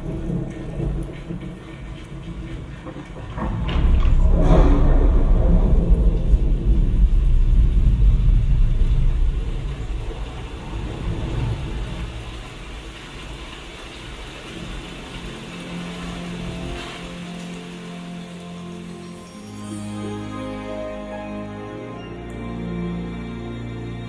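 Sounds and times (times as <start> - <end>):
low steady musical tones: 0.0 - 10.2, 11.1 - 24.0
deep rolling thunder: 0.0 - 17.5
rain falling on foliage: 0.0 - 24.0.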